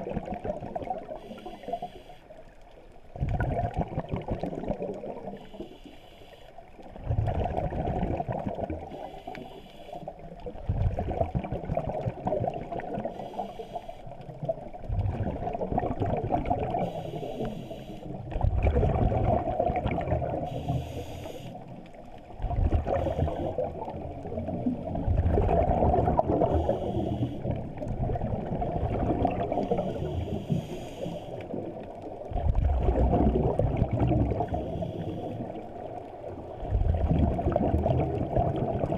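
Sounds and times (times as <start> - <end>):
exhaled bubbles gurgling: 0.0 - 5.8, 6.6 - 38.9
regulator inhale hiss: 1.2 - 2.6, 5.4 - 6.8, 8.9 - 10.3, 13.0 - 14.2, 16.7 - 18.3, 20.4 - 22.0, 22.9 - 23.7, 26.4 - 27.6, 29.5 - 31.6, 34.3 - 35.7.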